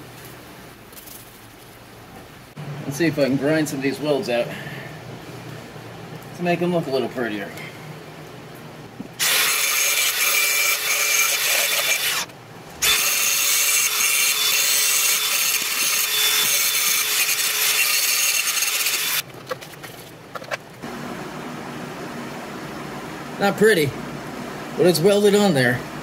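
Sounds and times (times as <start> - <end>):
angle grinder grinding steel: 9.2 - 19.2.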